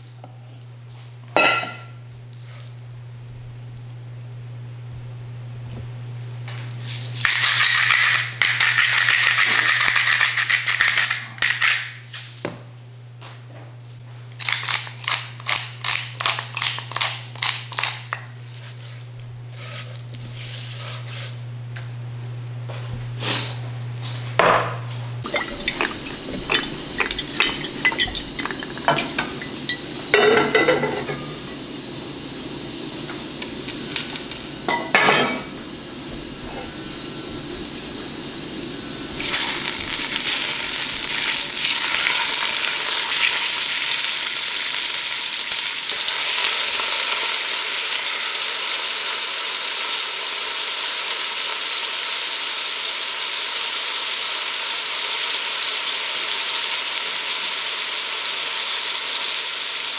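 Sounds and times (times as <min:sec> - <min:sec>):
butter sizzling in a pot: 0:06.6 - 0:12.2, 0:25.2 - 0:36.0, 0:38.8 - 0:59.9
spice mill grinding: 0:06.8 - 0:12.4, 0:14.4 - 0:21.2, 0:25.2 - 0:30.1, 0:33.4 - 0:34.6, 0:39.2 - 0:49.2.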